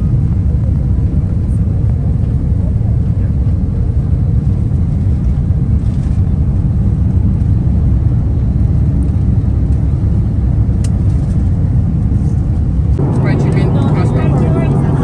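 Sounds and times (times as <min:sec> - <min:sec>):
jet engine cabin rumble: 0:00.0 - 0:15.0
small click: 0:10.8 - 0:11.3.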